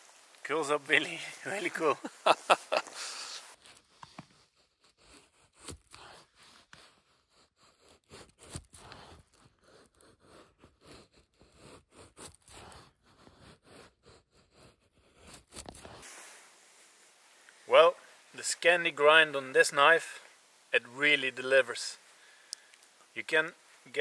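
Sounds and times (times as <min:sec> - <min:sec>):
knife scraping wood: 0:03.5 - 0:16.1.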